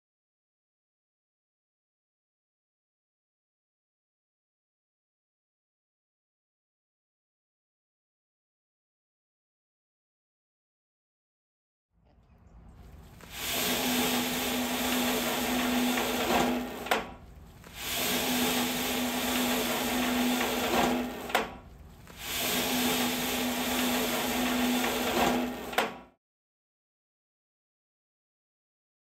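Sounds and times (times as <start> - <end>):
netting machine motor humming: 12.7 - 26.1.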